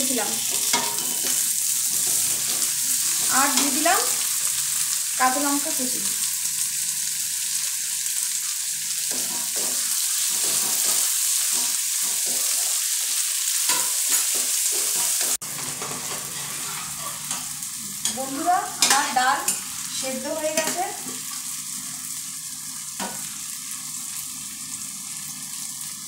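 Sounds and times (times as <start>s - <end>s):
vegetables sizzling in oil: 0.0s - 26.0s
wooden spatula scraping pan: 15.8s - 17.4s.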